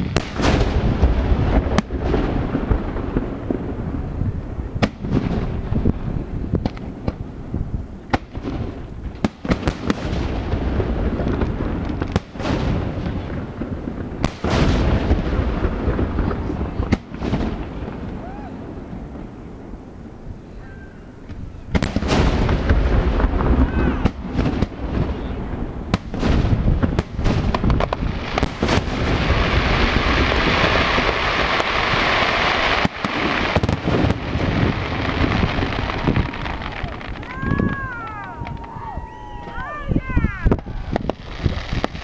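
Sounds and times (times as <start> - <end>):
firework shells bursting: 21.3 - 38.9.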